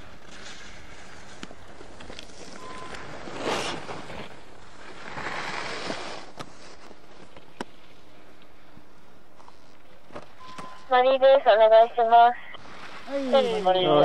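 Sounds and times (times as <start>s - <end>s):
skis swishing on snow: 0.0s - 8.0s.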